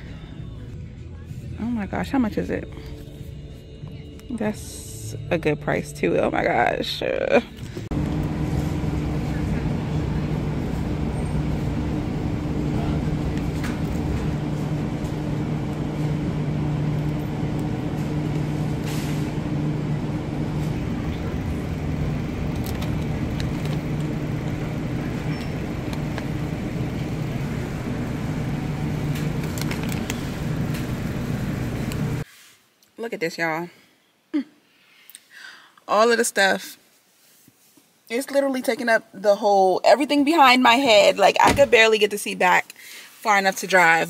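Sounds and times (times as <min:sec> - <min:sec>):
refrigerated display cases humming: 0:00.0 - 0:32.2
plastic packaging crackling: 0:29.1 - 0:30.8.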